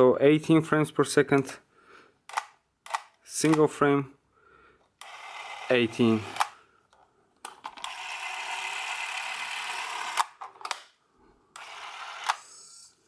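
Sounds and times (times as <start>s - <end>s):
camera clicks: 2.3s - 3.7s, 10.1s - 10.9s, 11.6s - 12.6s
camera motor whirring: 5.0s - 6.6s, 7.8s - 10.4s, 11.6s - 13.0s.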